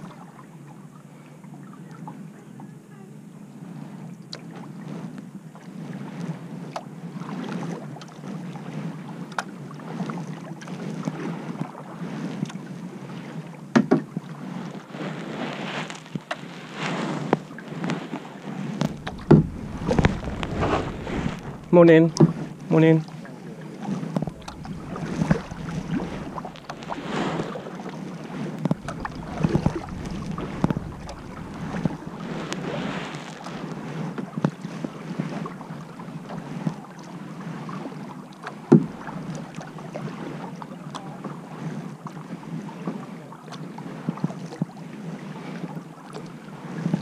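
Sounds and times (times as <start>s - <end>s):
paddle splashing in water: 4.4s - 47.0s
wind on microphone: 14.8s - 36.9s, 38.6s - 40.6s.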